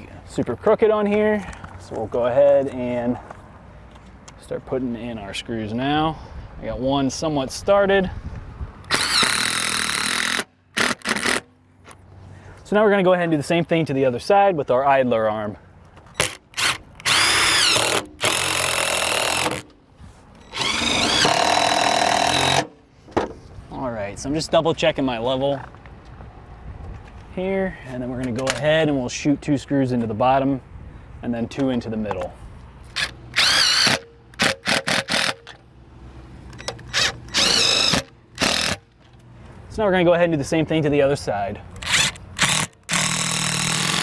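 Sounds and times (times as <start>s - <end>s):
cordless drill driving screws: 8.9s - 11.5s, 16.2s - 19.7s, 20.4s - 22.7s, 32.9s - 35.6s, 36.6s - 38.8s, 41.8s - 44.0s.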